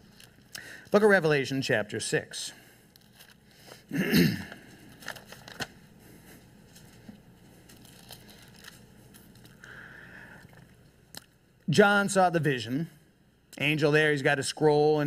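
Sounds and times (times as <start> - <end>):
thin pages turning: 2.9 - 3.8, 4.7 - 5.8, 6.7 - 9.6
paper rustle: 4.8 - 9.7.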